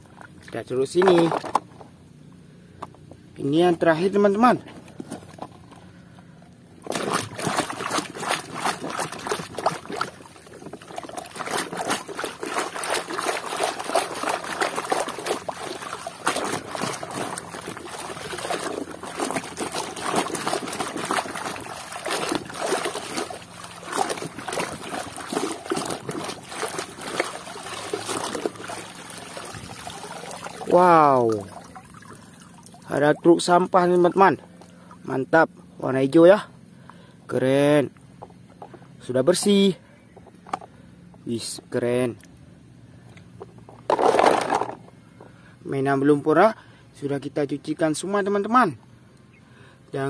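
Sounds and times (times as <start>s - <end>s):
water splashing and dribbling: 0.0s - 1.8s, 6.8s - 35.0s.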